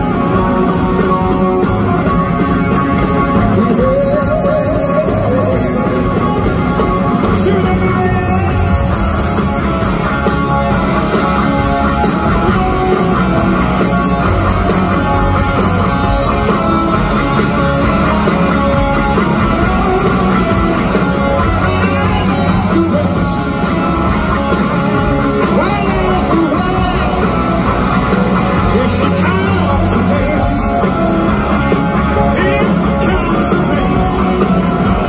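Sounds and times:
electric guitar: 0:00.0 - 0:35.0
live rock band playing: 0:00.0 - 0:35.0
person singing: 0:03.2 - 0:09.4, 0:19.6 - 0:23.8, 0:25.3 - 0:27.7, 0:28.4 - 0:31.1, 0:32.1 - 0:35.0.

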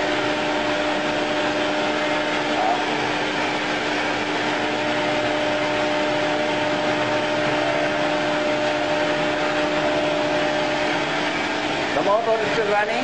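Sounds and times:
electric motor whirring: 0:00.0 - 0:13.0.

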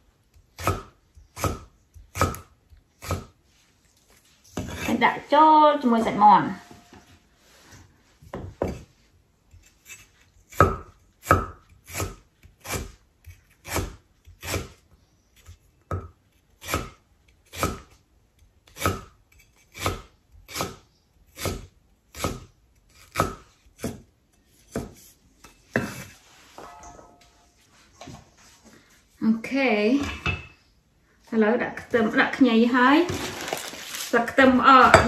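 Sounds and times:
cleaver chopping on wooden block: 0:00.6 - 0:03.3, 0:10.6 - 0:12.9.

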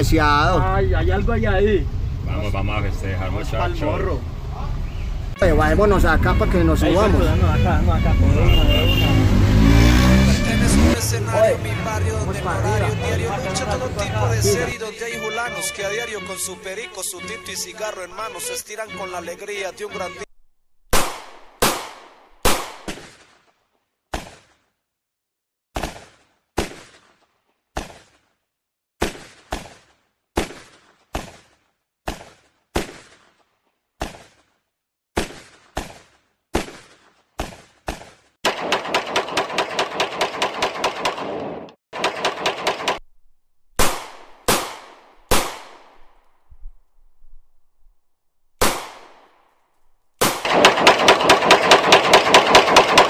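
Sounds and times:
single gunshots: 0:20.9 - 0:23.5, 0:24.1 - 0:24.6, 0:25.8 - 0:28.2, 0:29.0 - 0:33.4, 0:34.0 - 0:34.4, 0:35.2 - 0:43.0, 0:43.8 - 0:46.2, 0:48.6 - 0:49.3, 0:50.2 - 0:53.0
automatic gunfire bursts: 0:38.4 - 0:43.0, 0:50.2 - 0:53.0.

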